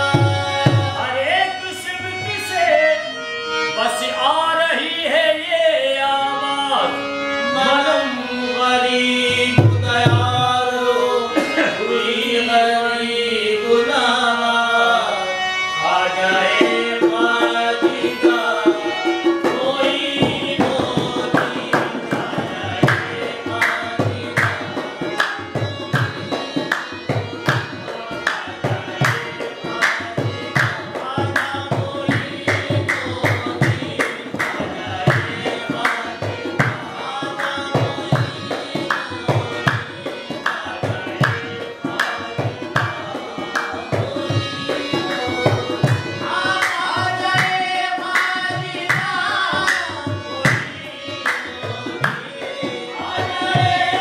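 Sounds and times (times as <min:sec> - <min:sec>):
harmonium: 0:00.0 - 0:54.0
people singing: 0:00.0 - 0:54.0
hand claps: 0:22.8 - 0:28.4, 0:29.0 - 0:36.0, 0:42.0 - 0:42.2, 0:42.8 - 0:43.8, 0:44.6 - 0:53.3.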